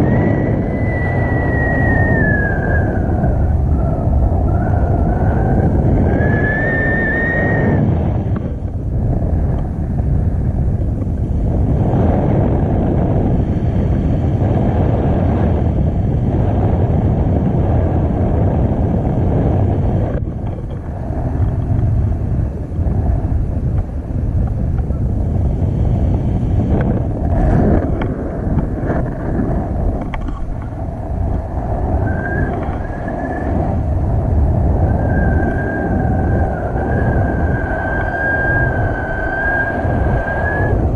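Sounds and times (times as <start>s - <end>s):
thin whistling tone: 0.0s - 3.1s, 31.9s - 33.5s
wind rushing over microphone: 0.0s - 40.9s.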